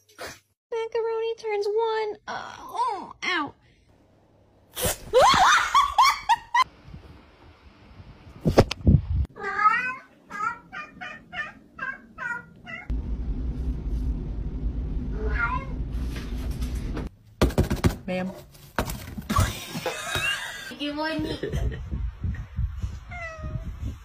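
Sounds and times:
cat meowing: 0:09.4 - 0:12.9, 0:15.2 - 0:15.8
cat yowling: 0:09.4 - 0:12.9.

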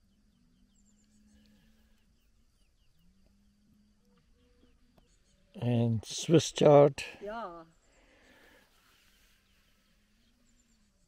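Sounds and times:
faint low hum: 0:00.0 - 0:06.8
distant bird chirps: 0:00.0 - 0:11.0.

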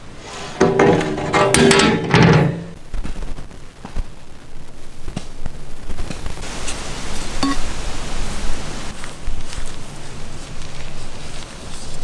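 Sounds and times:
metal plate clattering against pot: 0:00.5 - 0:02.8
faint rustling: 0:02.9 - 0:12.0.

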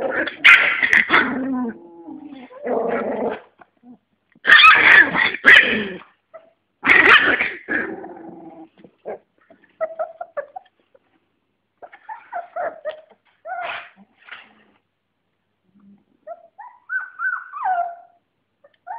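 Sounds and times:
puppies growling and yelping: 0:00.0 - 0:10.9, 0:11.8 - 0:14.8, 0:16.2 - 0:18.9
puppies whimpering and yipping: 0:09.8 - 0:10.7, 0:11.8 - 0:14.0, 0:16.2 - 0:18.9.

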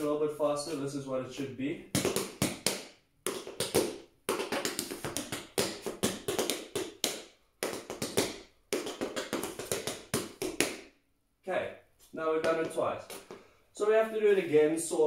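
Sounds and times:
tap shoes striking floor: 0:01.9 - 0:10.9, 0:12.4 - 0:13.4.

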